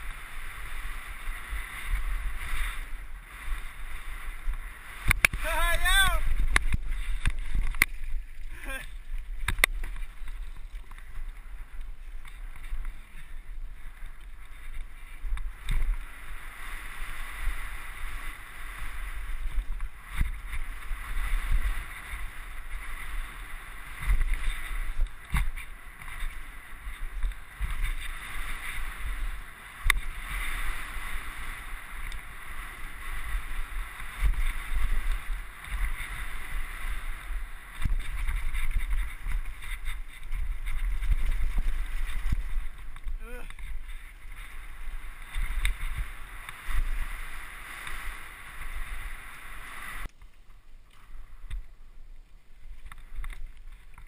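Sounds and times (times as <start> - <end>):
wind buffeting microphone: 0.0 - 50.1
bike knocking on rocks: 5.0 - 5.5, 9.2 - 11.2, 24.0 - 26.4.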